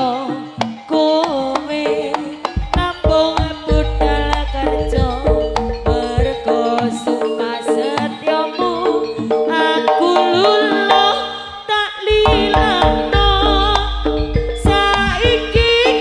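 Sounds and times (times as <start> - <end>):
hand drums: 0.0 - 11.3, 12.1 - 16.0
gamelan music over sound system: 0.0 - 16.0
deep bass: 3.7 - 6.5, 12.2 - 15.8.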